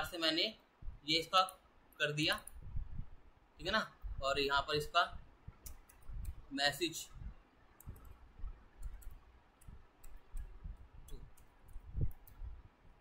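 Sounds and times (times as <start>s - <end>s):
soft low thuds: 0.8s - 1.1s, 2.6s - 3.2s.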